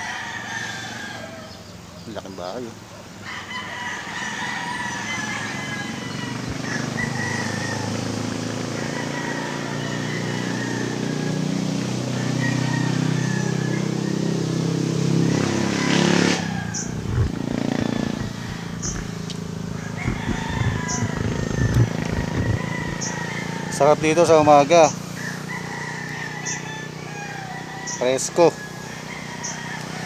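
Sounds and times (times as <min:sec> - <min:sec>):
roosters crowing: 0:00.0 - 0:01.9, 0:03.0 - 0:30.0
small motor engine running: 0:16.0 - 0:30.0
light rustles and knocks: 0:18.9 - 0:23.1.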